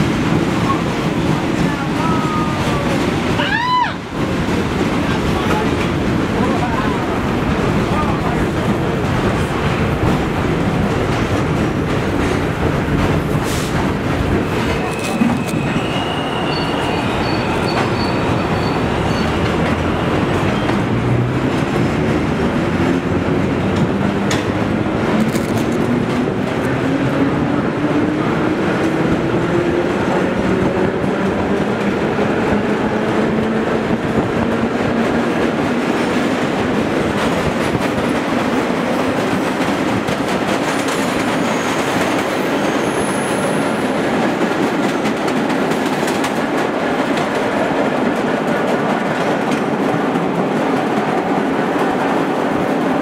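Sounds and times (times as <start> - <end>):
wheels clattering on rails: 0.0 - 53.0.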